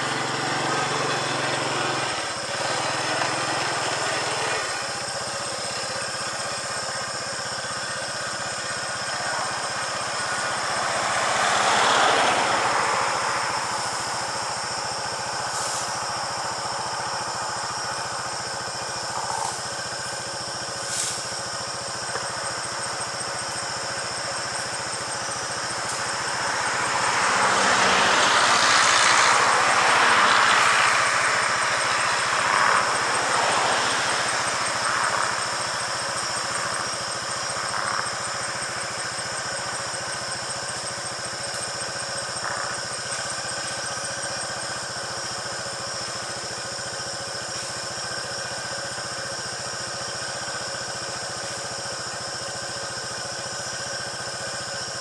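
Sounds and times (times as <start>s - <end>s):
vehicle passing by: 0.0s - 5.5s, 8.5s - 20.2s, 22.8s - 44.9s
vehicle engine idling: 0.0s - 55.0s.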